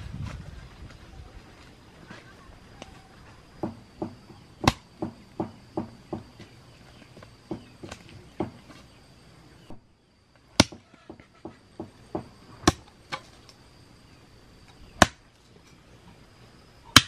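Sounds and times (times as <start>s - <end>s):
chopping strikes: 3.6s - 6.3s.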